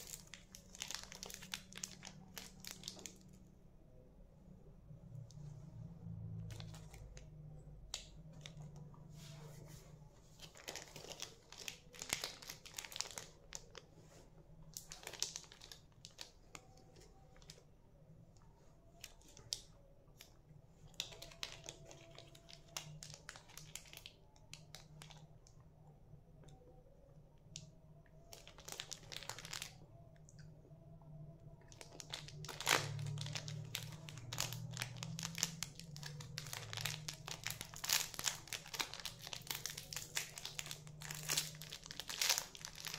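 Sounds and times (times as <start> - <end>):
plastic wrappers crinkling and tearing: 0.0 - 3.4, 6.4 - 7.3, 10.3 - 17.6, 20.9 - 25.3, 27.6 - 29.8, 31.6 - 42.9.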